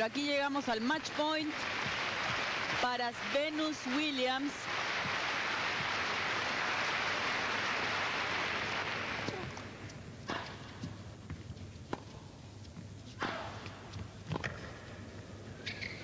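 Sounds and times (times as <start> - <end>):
arena crowd applauding: 0.6 - 9.8
tennis ball bouncing: 9.2 - 12.9, 13.6 - 14.8.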